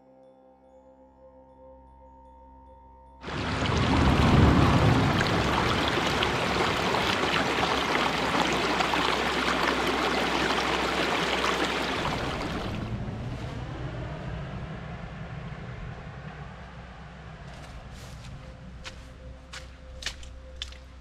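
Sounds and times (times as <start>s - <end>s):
stream rushing over rocks: 3.2s - 13.0s.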